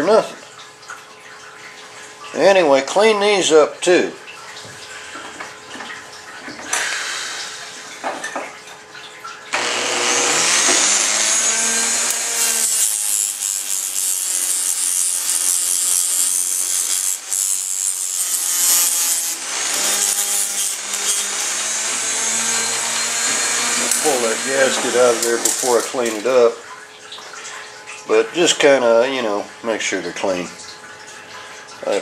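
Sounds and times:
abrasive scrubbing: 0:09.6 - 0:26.6
handling noises: 0:23.2 - 0:26.4.

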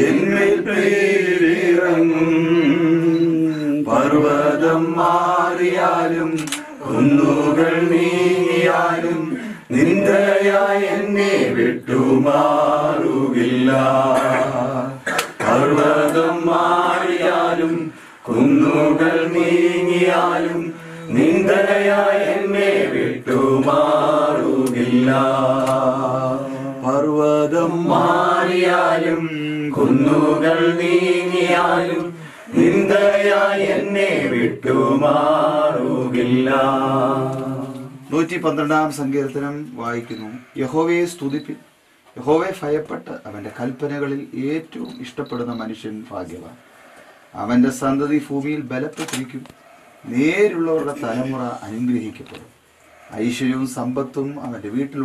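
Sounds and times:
group singing a hymn: 0:00.0 - 0:38.2.

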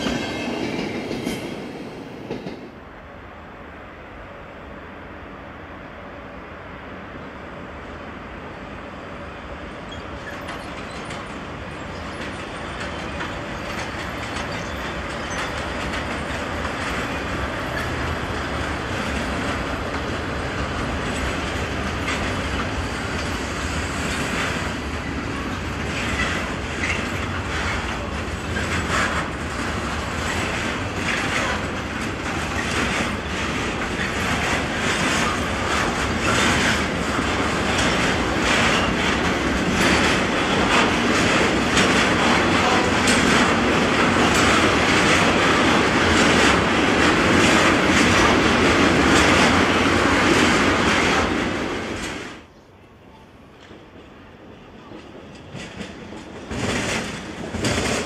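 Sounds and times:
freight train rumble: 0:00.0 - 0:58.0
wheels clattering over rail joints: 0:10.2 - 0:18.1.

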